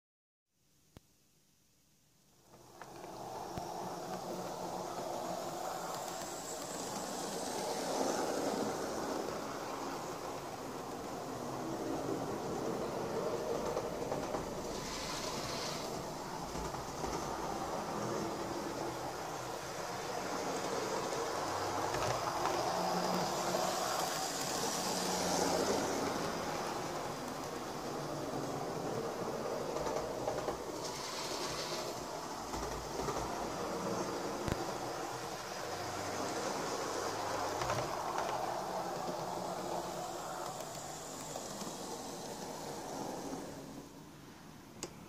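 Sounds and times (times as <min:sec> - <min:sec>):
model train rumbling on rails: 0:02.5 - 0:45.0.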